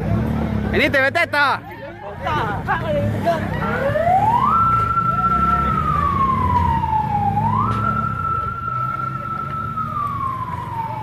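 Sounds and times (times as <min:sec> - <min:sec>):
emergency vehicle siren wailing: 0:03.5 - 0:11.0.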